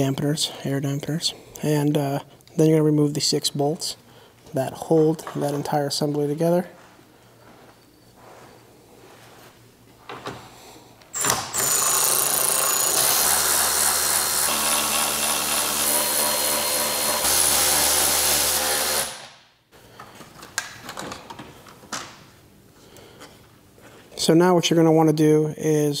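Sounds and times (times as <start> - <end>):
electric ratchet running: 11.2 - 19.3.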